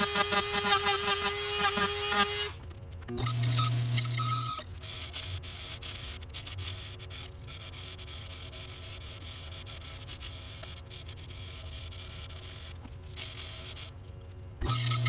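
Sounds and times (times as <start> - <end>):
sandpaper rubbing on turning wood: 4.8 - 14.0.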